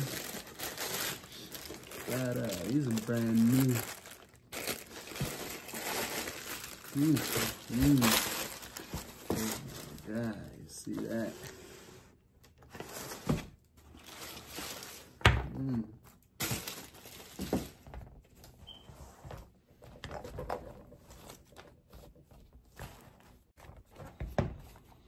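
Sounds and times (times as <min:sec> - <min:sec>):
tissue paper rustling: 0:00.0 - 0:11.6, 0:12.7 - 0:15.2, 0:16.4 - 0:17.8.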